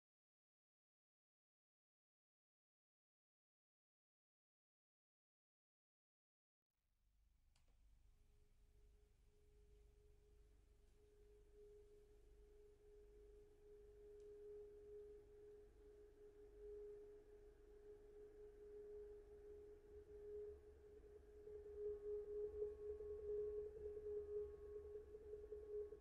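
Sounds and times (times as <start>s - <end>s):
sustained pure tone: 12.6s - 26.0s.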